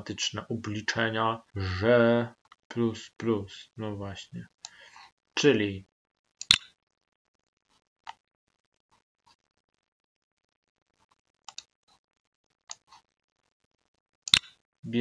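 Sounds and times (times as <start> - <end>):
computer mouse clicking: 11.5 - 11.7.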